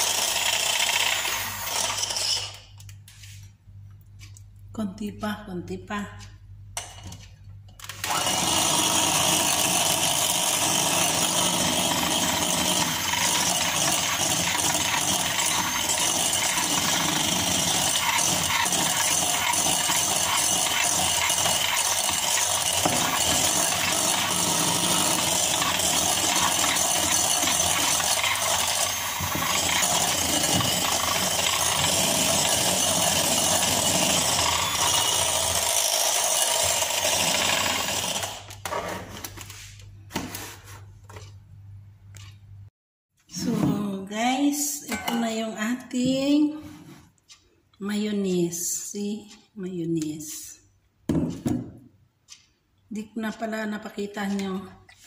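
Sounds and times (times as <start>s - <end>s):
electric hand mixer running: 0.0s - 2.5s, 8.0s - 38.6s.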